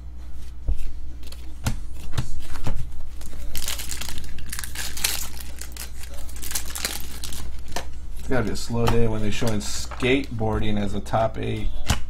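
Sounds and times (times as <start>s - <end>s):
wrapper crinkling and tearing: 3.1s - 7.9s.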